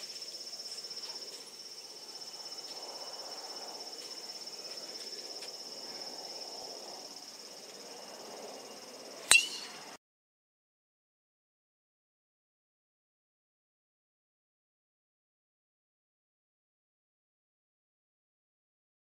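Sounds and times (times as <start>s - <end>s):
insects trilling: 0.0s - 10.0s
golf driver striking ball: 9.3s - 9.8s.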